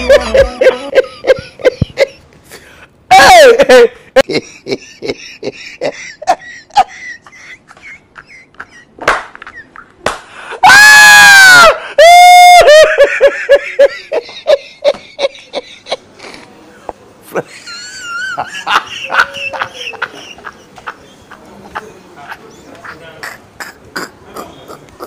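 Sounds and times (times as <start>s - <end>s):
person laughing: 0.0s - 2.2s, 3.2s - 10.0s
person crying out: 3.1s - 4.0s, 10.6s - 12.9s.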